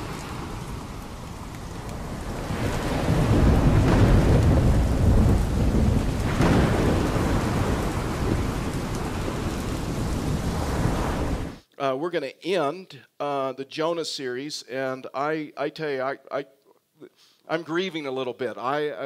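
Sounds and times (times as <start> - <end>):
heavy rain: 0.0 - 11.6
rolling thunder: 0.0 - 11.6
sharp thunder crack: 2.0 - 11.6.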